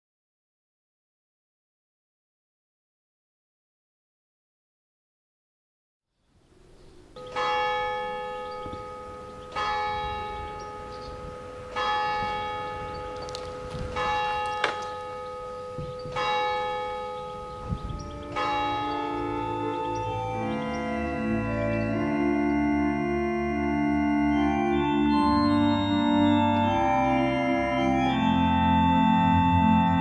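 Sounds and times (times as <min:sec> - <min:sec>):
church bell tolling: 0:07.2 - 0:30.0
electronic organ chords: 0:07.2 - 0:30.0.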